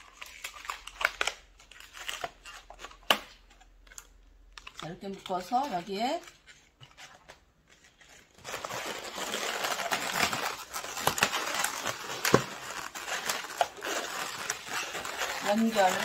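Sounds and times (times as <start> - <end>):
balloons rubbing and crinkling: 4.8 - 16.0.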